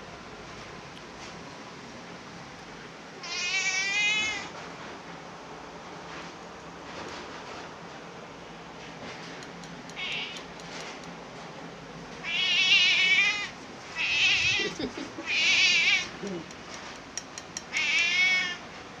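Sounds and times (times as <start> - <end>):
cat meowing: 3.2 - 4.5, 9.9 - 10.5, 12.2 - 16.4, 17.7 - 18.6.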